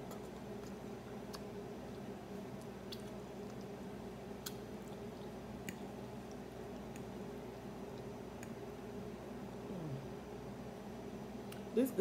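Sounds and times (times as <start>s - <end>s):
person chewing food: 0.0s - 8.6s
steady low hum: 0.0s - 12.0s.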